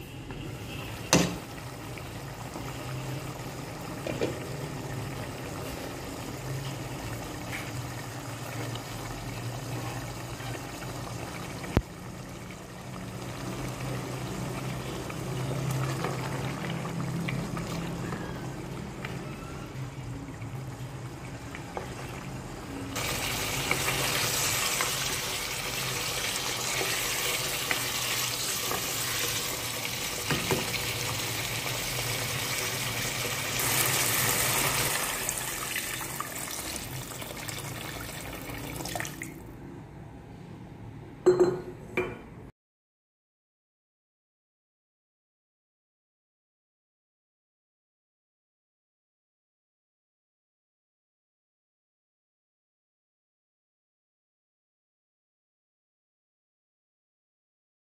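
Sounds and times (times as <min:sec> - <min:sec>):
stew bubbling in a pot: 0:00.7 - 0:39.4.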